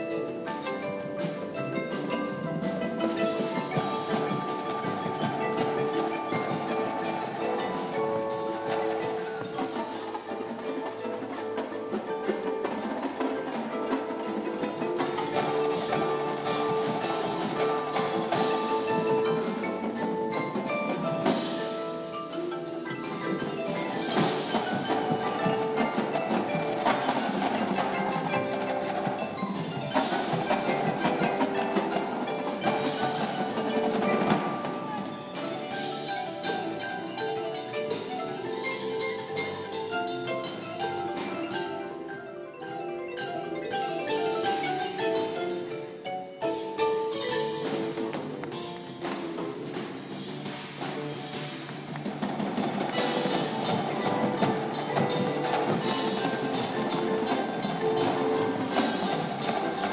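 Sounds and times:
marimbas playing: 0:00.0 - 0:59.9.

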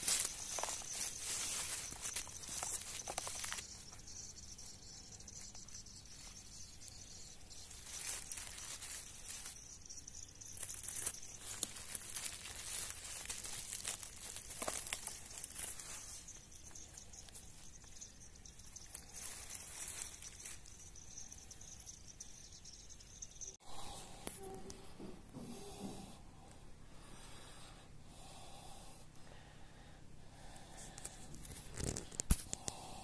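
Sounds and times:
rustling of leaf litter: 0:00.0 - 0:21.7
high insect chirring: 0:00.0 - 0:23.6.

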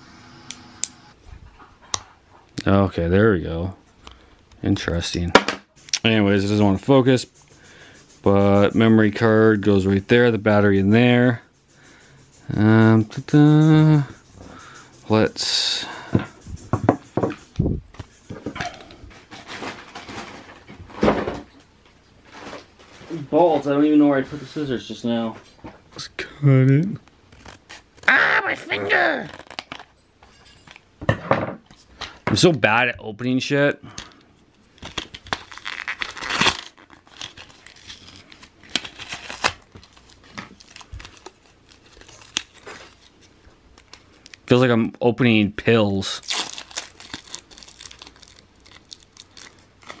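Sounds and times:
plastic tearing: 0:27.3 - 0:29.9, 0:34.0 - 0:44.5, 0:46.0 - 0:50.0
plastic packaging crinkling: 0:29.1 - 0:29.9, 0:34.5 - 0:44.6, 0:46.0 - 0:50.0.

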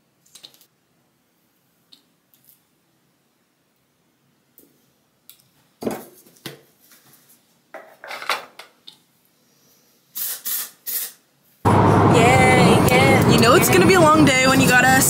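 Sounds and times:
aerosol spray hiss: 0:10.1 - 0:11.2.

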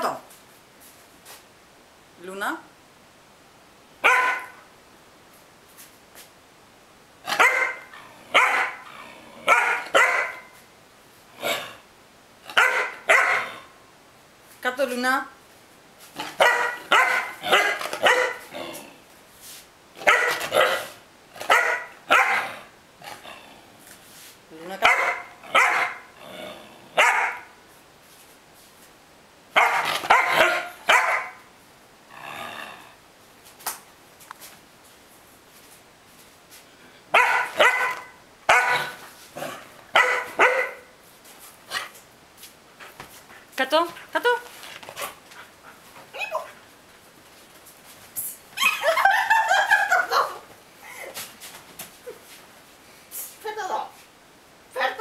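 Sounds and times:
puppy barking: 0:04.0 - 0:04.6, 0:07.3 - 0:08.8, 0:09.5 - 0:10.6, 0:12.5 - 0:13.7, 0:16.3 - 0:18.5, 0:20.0 - 0:22.5, 0:24.8 - 0:26.1, 0:27.0 - 0:27.6, 0:29.6 - 0:31.5, 0:37.1 - 0:39.0, 0:39.9 - 0:40.9.

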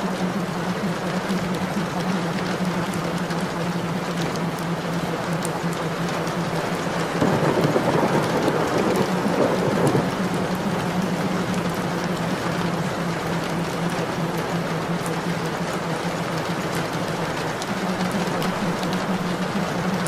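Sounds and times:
steady rain falling: 0:00.0 - 0:20.0
thunder rolling: 0:06.7 - 0:12.8.

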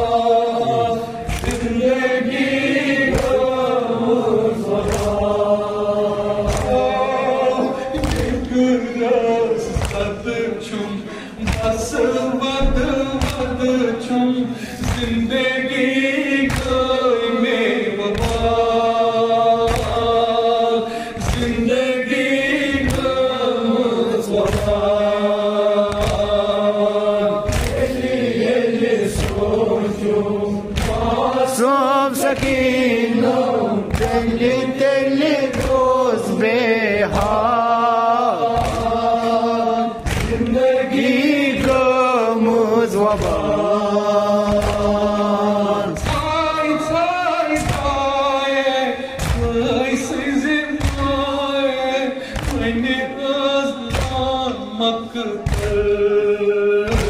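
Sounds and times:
man singing a lament: 0:00.0 - 0:57.0
hands beating chests: 0:04.7 - 0:05.4, 0:06.2 - 0:08.7, 0:09.6 - 0:10.4, 0:11.4 - 0:13.7, 0:19.6 - 0:20.3, 0:25.8 - 0:26.6, 0:27.4 - 0:28.4, 0:29.0 - 0:29.8, 0:30.7 - 0:31.4, 0:35.4 - 0:36.0, 0:38.4 - 0:39.4, 0:40.0 - 0:40.8, 0:44.4 - 0:45.3, 0:49.2 - 0:51.4, 0:53.9 - 0:54.4.

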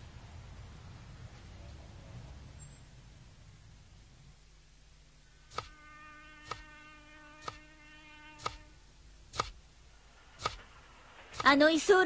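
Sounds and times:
steady buzzing tone: 0:05.2 - 0:11.5
sharp ticks: 0:10.4 - 0:10.6, 0:11.3 - 0:11.6.

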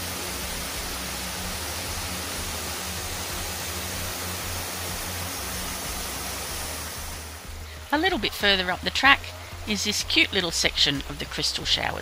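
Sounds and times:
waterfall rushing: 0:00.0 - 0:07.7.

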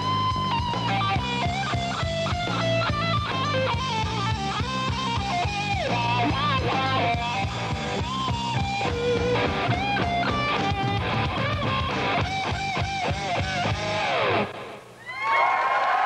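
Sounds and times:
electric guitar lead: 0:00.0 - 0:14.8
drums: 0:00.0 - 0:15.2.

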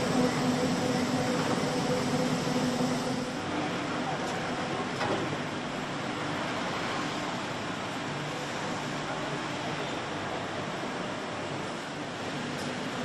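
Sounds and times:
machine hum: 0:00.0 - 0:03.4.

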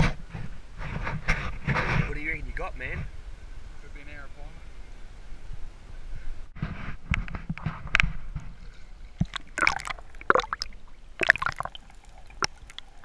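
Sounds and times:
water sloshing and gurgling: 0:07.6 - 0:13.0
water splashes: 0:08.4 - 0:13.0
bubbly clicks: 0:09.2 - 0:13.0.

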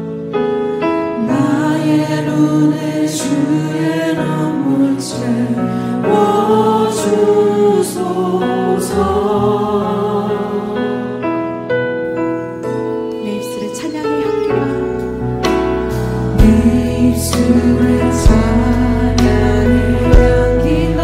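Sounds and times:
voices singing gospel song: 0:01.2 - 0:11.4, 0:16.2 - 0:21.0
instrumental accompaniment: 0:03.8 - 0:21.0.

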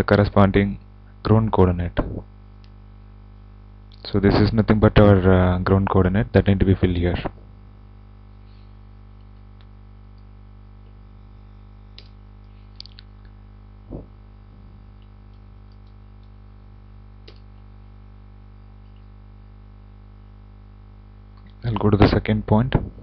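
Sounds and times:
low electrical hum: 0:00.0 - 0:23.0
soft low thump: 0:13.9 - 0:14.8, 0:22.0 - 0:23.0.

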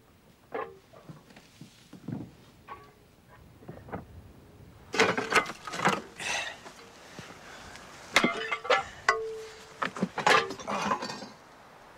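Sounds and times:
roofing pieces clinking and knocking: 0:08.2 - 0:11.4.

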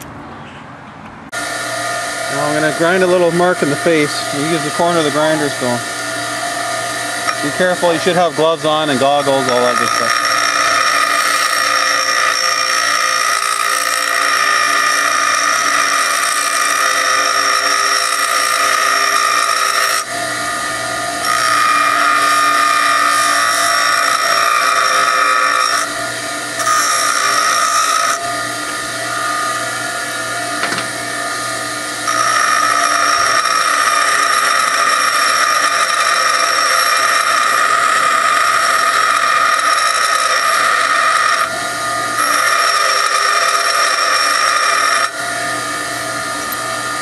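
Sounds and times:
bench grinder grinding steel: 0:01.4 - 0:47.0.

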